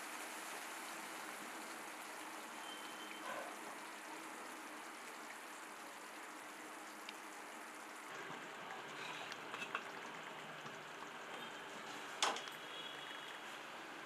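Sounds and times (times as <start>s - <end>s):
gravy bubbling and sizzling: 0.0s - 14.0s.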